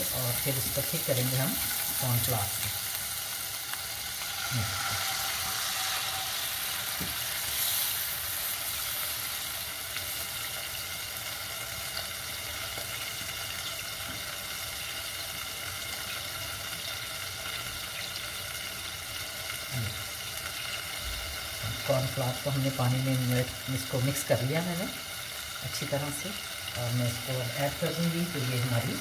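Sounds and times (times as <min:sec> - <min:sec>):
sizzling in a pan: 0:00.0 - 0:29.0
liquid poured into hot pan: 0:01.1 - 0:12.1.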